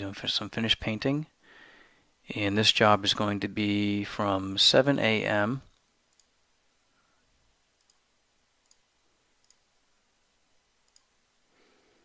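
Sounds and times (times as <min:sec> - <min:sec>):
computer mouse clicks: 0:05.7 - 0:06.4, 0:07.8 - 0:08.0, 0:08.6 - 0:09.7, 0:10.8 - 0:11.2.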